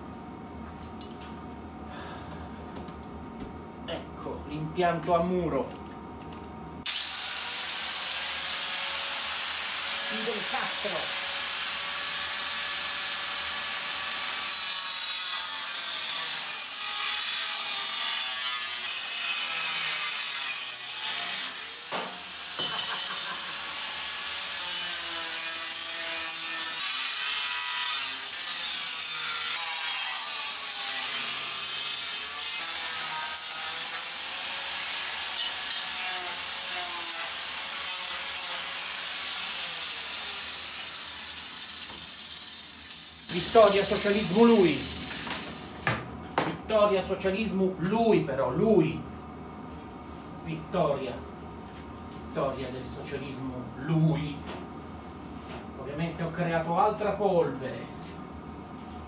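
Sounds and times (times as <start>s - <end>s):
angle grinder cutting steel: 6.8s - 45.8s.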